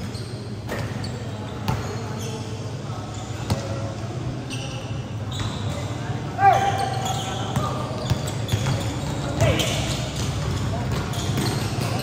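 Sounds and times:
ball bouncing on hard court: 0.0s - 1.9s, 3.4s - 3.8s, 7.4s - 12.0s
short high squeaks: 4.4s - 10.2s.

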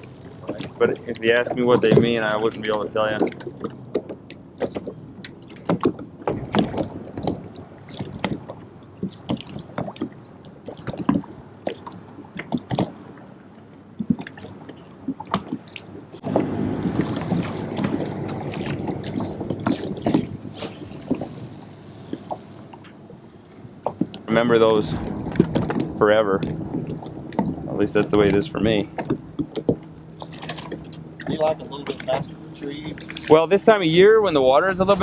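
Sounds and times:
rush of water and wind: 0.0s - 35.0s
waves lapping against boat hull: 0.0s - 35.0s
wind on microphone: 14.0s - 22.6s, 23.7s - 33.3s, 34.2s - 35.0s.

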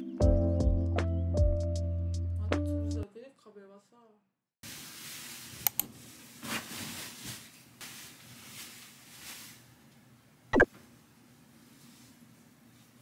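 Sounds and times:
soft rustling movement: 4.7s - 9.7s.

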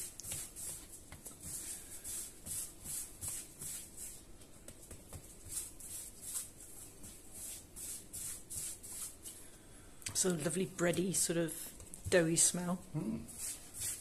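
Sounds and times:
hands swishing dough on stone: 0.0s - 9.4s, 13.3s - 14.0s.

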